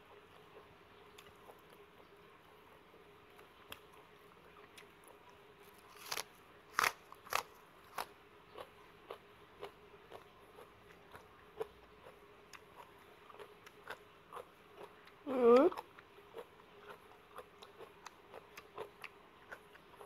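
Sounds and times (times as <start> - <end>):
chewing: 3.4 - 20.0
biting crunchy onion: 5.8 - 15.0.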